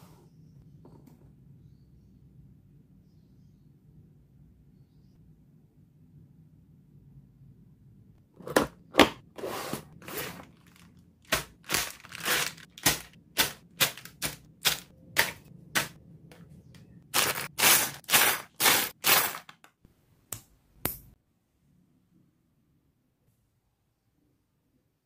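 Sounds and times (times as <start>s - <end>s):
plastic bags crackling: 10.0s - 15.4s, 17.2s - 19.5s
plastic crinkling: 10.0s - 15.4s, 17.2s - 19.6s.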